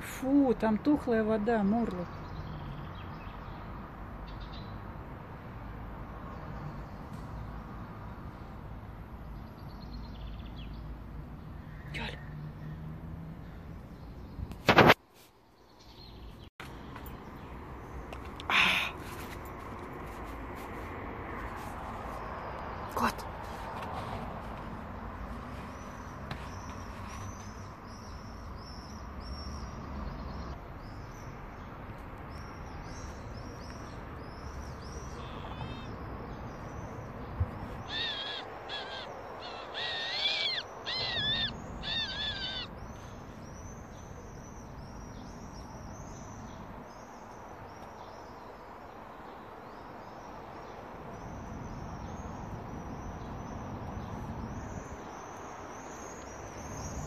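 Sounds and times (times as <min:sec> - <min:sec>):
small birds chirping: 0:00.0 - 0:57.0
owl squeaky calls: 0:35.0 - 0:35.9, 0:37.8 - 0:42.7.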